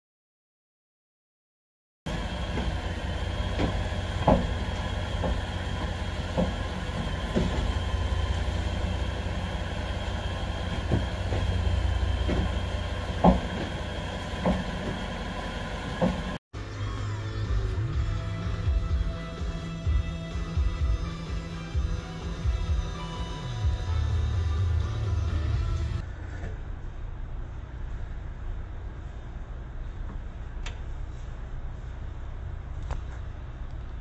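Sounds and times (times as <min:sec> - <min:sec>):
suspension clunking: 0:02.1 - 0:16.4.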